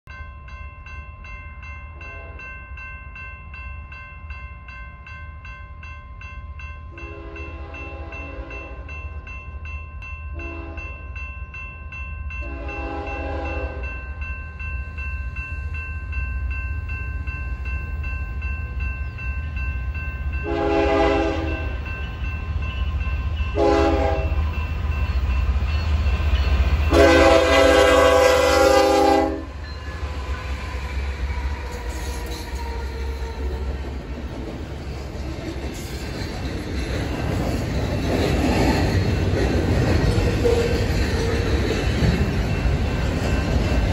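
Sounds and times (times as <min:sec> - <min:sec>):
crossing warning bell ringing: 0:00.1 - 0:43.9
diesel locomotives rumbling: 0:06.9 - 0:43.9
train horn blasts: 0:07.0 - 0:08.9, 0:10.4 - 0:10.9, 0:12.4 - 0:13.9, 0:20.4 - 0:21.8, 0:23.5 - 0:24.4, 0:26.9 - 0:29.6.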